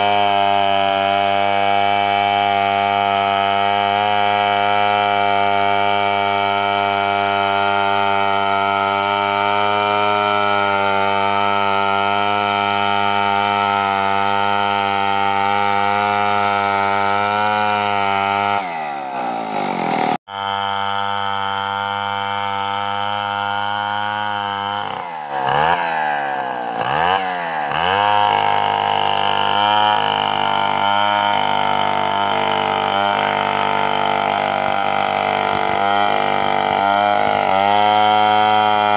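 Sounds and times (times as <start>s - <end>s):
chainsaw ripping a log: 0.0s - 38.9s.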